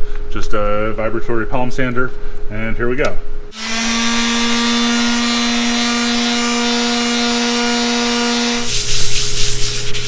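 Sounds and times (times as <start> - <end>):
palm sander humming: 3.5 - 10.0
rubbing hiss on glass: 8.6 - 10.0.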